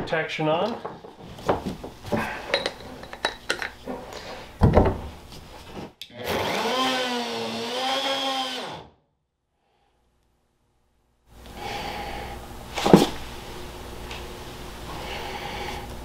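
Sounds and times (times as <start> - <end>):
router motor spinning: 6.2 - 8.9.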